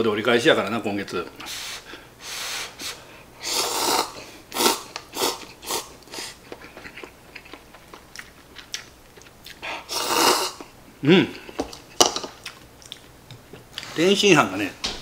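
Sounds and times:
man slurping noodles: 0:03.4 - 0:06.4, 0:09.9 - 0:10.6
wet chewing: 0:04.9 - 0:09.9, 0:11.7 - 0:13.9.

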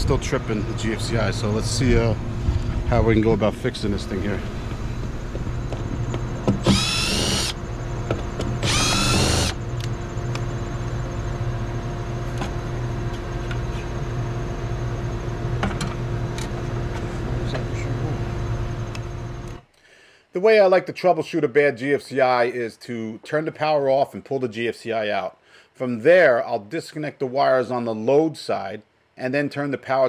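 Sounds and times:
steady hum: 0:00.0 - 0:19.7
cordless drill whining: 0:06.6 - 0:07.6, 0:08.6 - 0:09.6.

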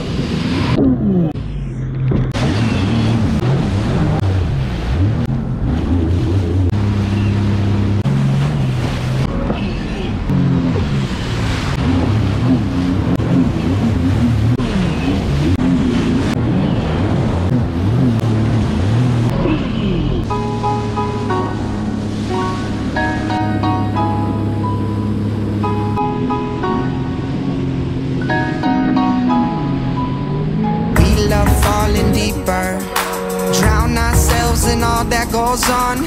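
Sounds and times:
wind: 0:00.0 - 0:31.0
jet ski engines revving: 0:00.0 - 0:36.0
surf and spray: 0:10.6 - 0:17.1, 0:17.8 - 0:24.6.

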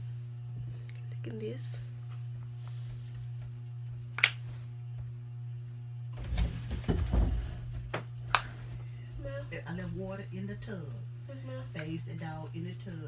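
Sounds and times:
steady low hum: 0:00.0 - 0:13.0
rustling and bumping: 0:06.2 - 0:08.2.

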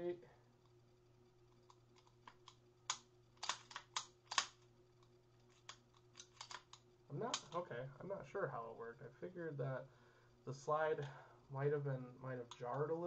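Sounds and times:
pistol mechanism clicks: 0:01.6 - 0:07.6.

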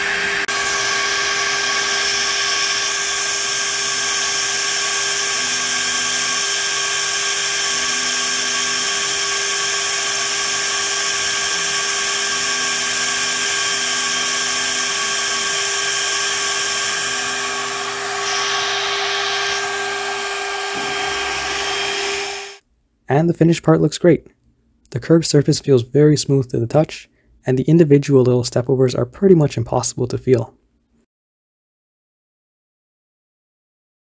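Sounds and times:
low machining tone: 0:00.0 - 0:22.6
milling spindle high whine: 0:00.0 - 0:22.6.

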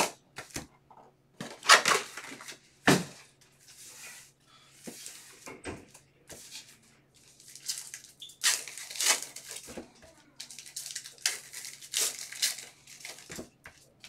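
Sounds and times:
foil card packs crinkling: 0:01.4 - 0:02.6, 0:07.2 - 0:09.8, 0:10.4 - 0:14.0.

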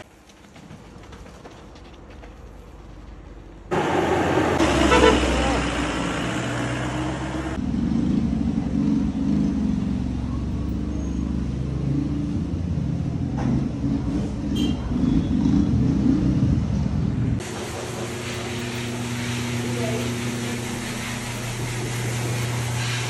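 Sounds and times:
vehicle engine rumbling: 0:00.0 - 0:23.0.

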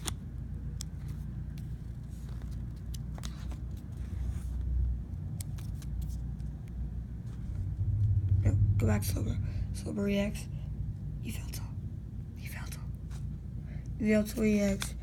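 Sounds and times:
plastic pages clicking and crinkling: 0:00.0 - 0:04.2, 0:05.2 - 0:06.8
steady low rumble: 0:00.0 - 0:15.0.

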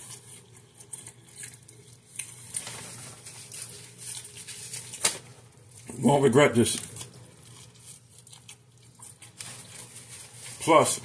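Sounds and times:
paper wrapper crackling: 0:02.2 - 0:08.5.

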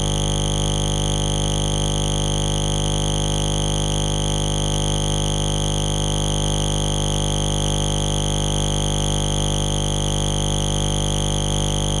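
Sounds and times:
steady electronic buzz: 0:00.0 - 0:01.6.

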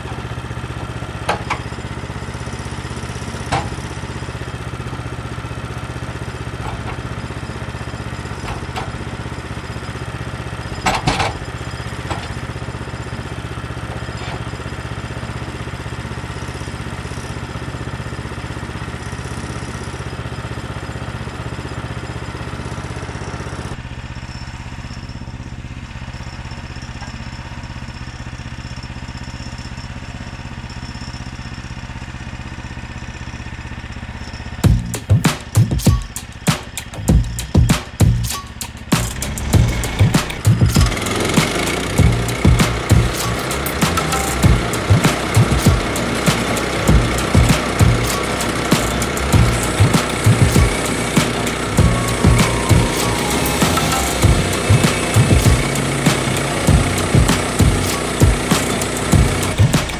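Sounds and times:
small gas engine idling: 0:00.0 - 0:59.9.

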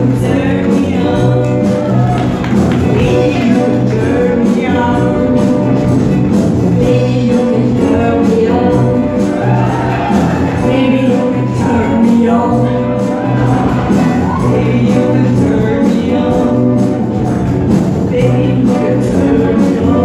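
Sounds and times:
brass band playing pop song: 0:00.0 - 0:20.0
person singing: 0:00.0 - 0:20.0.

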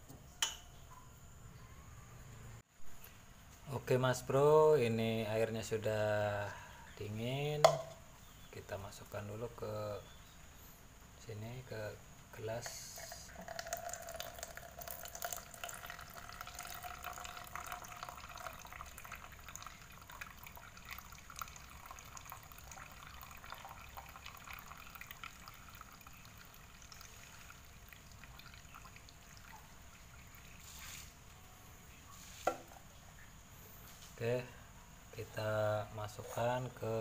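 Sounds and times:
water pouring into plastic mug: 0:12.7 - 0:31.2.

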